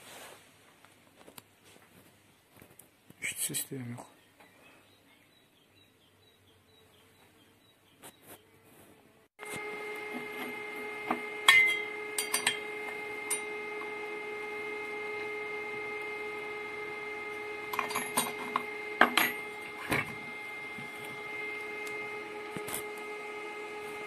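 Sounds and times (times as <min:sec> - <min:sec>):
steady high hum: 0:09.4 - 0:24.0
metal clinks and knocks: 0:11.1 - 0:13.5, 0:17.7 - 0:20.2.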